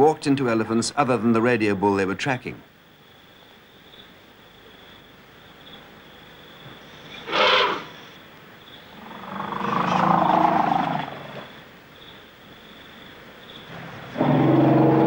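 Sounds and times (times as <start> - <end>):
elephant trumpeting: 7.2 - 7.9, 9.0 - 11.5, 14.2 - 15.0.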